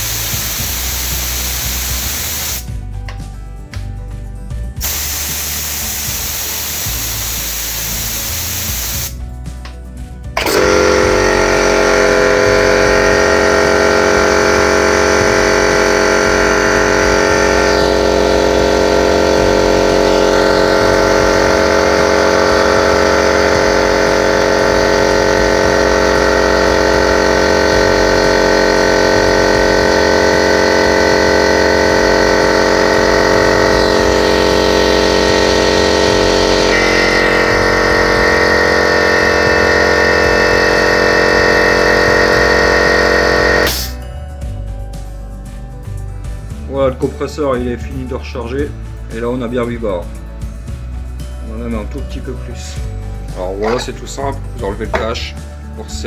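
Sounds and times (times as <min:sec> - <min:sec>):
air hissing out: 0:00.0 - 0:02.8, 0:04.8 - 0:09.2, 0:15.3 - 0:44.0
air compressor running: 0:00.0 - 0:03.0, 0:04.6 - 0:09.2, 0:10.3 - 0:44.1, 0:52.6 - 0:55.8.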